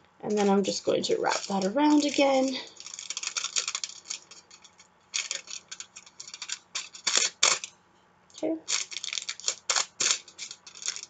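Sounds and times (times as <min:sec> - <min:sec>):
aluminium foil crinkling: 0:00.2 - 0:07.7, 0:08.4 - 0:11.0.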